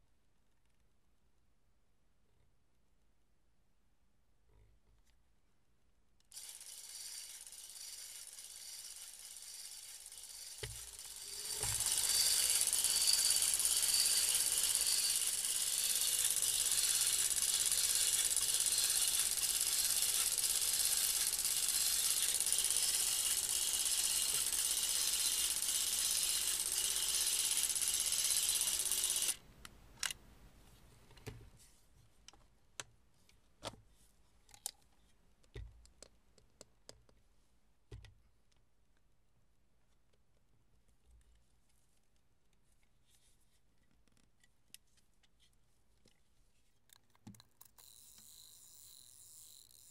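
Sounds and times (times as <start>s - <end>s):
movie camera mechanism whirring: 6.3s - 29.4s, 47.6s - 49.9s.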